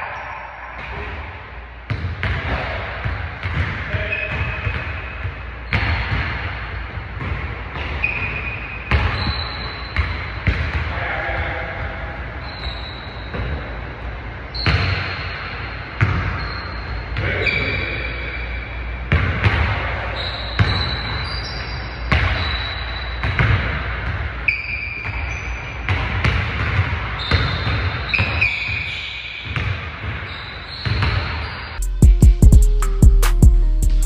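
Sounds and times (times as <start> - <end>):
basketballs bouncing on wooden floor: 1.9 - 13.7, 16.0 - 16.4, 19.1 - 19.8, 20.6 - 21.3, 22.1 - 22.6, 23.2 - 24.3, 25.9 - 31.4
sneaker squeaks: 3.4 - 6.3, 7.2 - 10.8, 11.8 - 13.8, 14.5 - 19.0, 20.1 - 23.5, 24.4 - 31.8.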